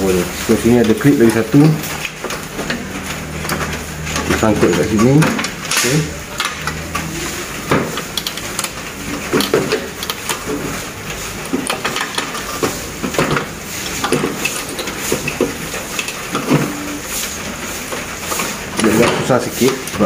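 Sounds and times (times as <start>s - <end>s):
plastic and metal clicks and rattles: 7.7s - 10.7s.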